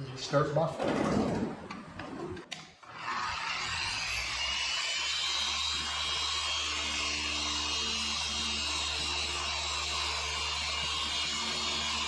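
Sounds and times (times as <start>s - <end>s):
electric car polisher running: 3.0s - 12.0s.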